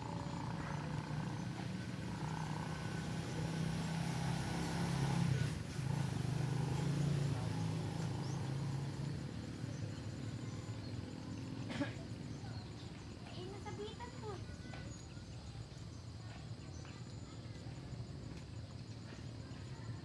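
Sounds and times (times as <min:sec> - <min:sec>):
low motor drone: 0:00.0 - 0:11.7.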